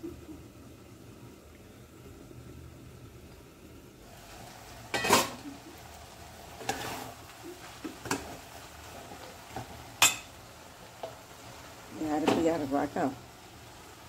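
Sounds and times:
metal ladle scraping a pot: 6.6s - 7.2s.

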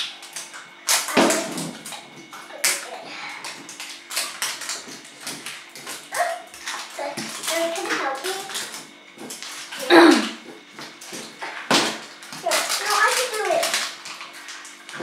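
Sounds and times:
wrapping crinkling and tearing: 0.0s - 15.0s
young child's voice: 2.5s - 3.4s, 6.1s - 8.7s, 12.4s - 13.8s.

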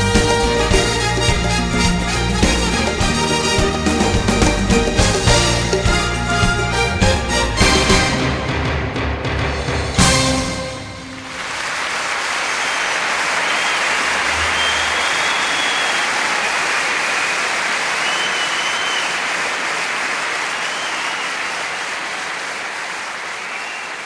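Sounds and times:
audience applause: 10.0s - 24.0s
thin high whistles: 13.4s - 19.2s, 20.6s - 21.6s, 23.4s - 24.0s.

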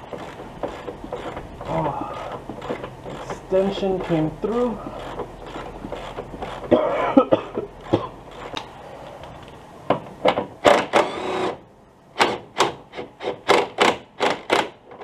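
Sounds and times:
cordless power tool bursts: 10.6s - 11.6s.

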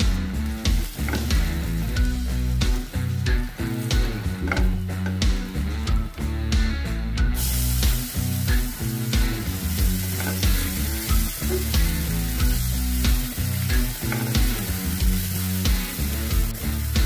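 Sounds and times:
garlic and onion sizzling in oil: 0.0s - 6.5s, 7.2s - 17.0s
background music with bass: 0.0s - 17.0s
spatula stirring in pan: 7.4s - 16.7s.

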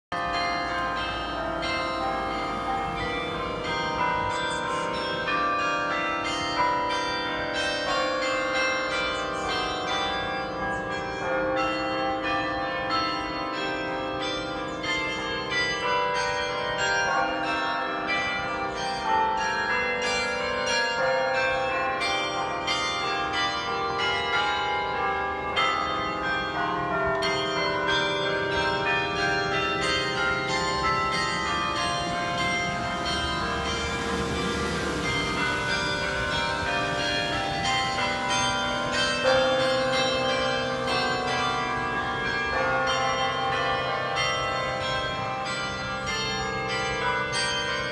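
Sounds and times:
carillon bells playing tune: 0.2s - 47.9s.

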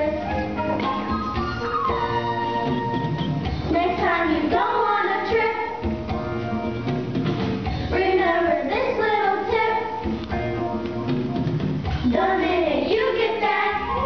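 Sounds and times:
musical accompaniment: 0.0s - 14.0s
children singing: 3.7s - 5.8s, 12.1s - 14.0s.

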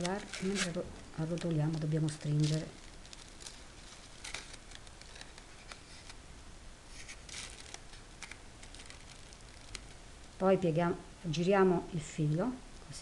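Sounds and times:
crepe paper crinkling: 0.0s - 6.2s, 6.9s - 10.4s.

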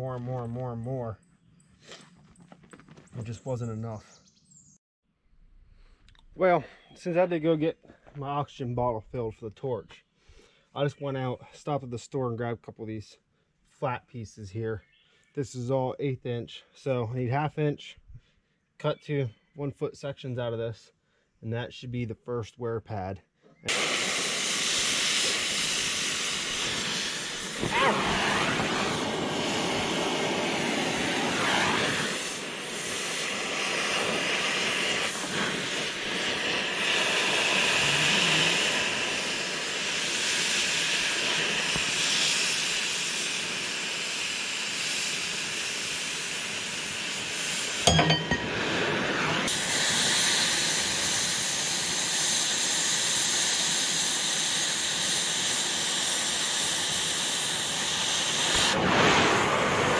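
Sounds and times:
cutting torch hissing: 23.7s - 47.8s, 48.6s - 59.9s
sharp knock: 47.9s - 48.8s.

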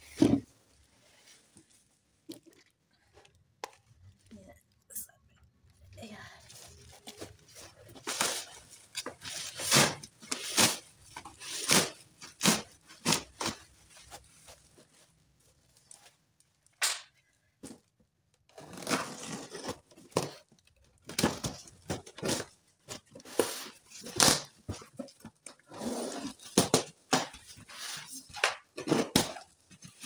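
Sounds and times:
cardboard and bubble wrap rustling: 5.8s - 16.4s, 18.5s - 30.0s.

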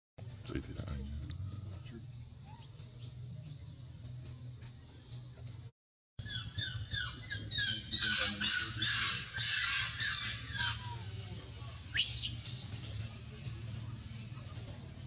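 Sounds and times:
baby monkey crying: 6.3s - 11.1s.

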